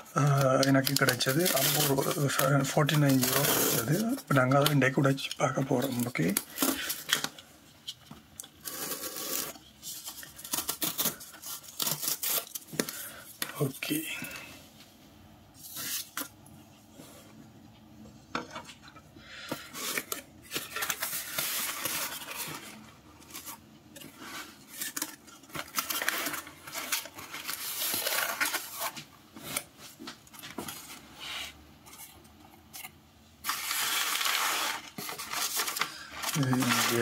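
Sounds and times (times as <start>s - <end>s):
paper packing rustling: 0.1s - 7.5s, 19.4s - 37.0s.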